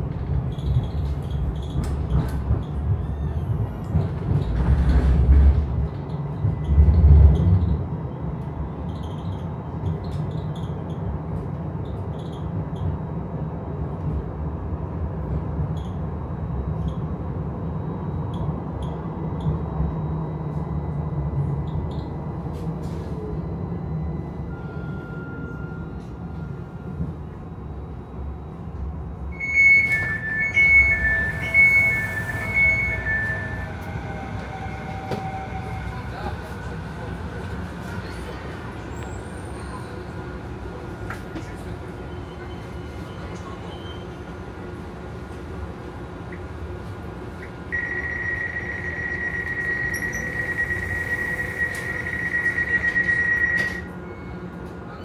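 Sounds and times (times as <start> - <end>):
tram wheels rumbling: 0.0 - 55.0
two-tone electronic door beeping: 21.5 - 37.6, 47.7 - 54.6.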